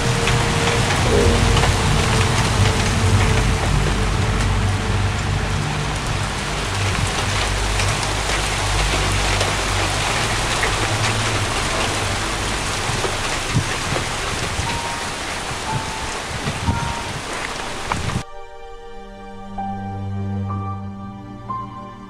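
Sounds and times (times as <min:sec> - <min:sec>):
low steady hum: 0:00.0 - 0:15.4
freezing rain on icy branches: 0:00.0 - 0:18.2.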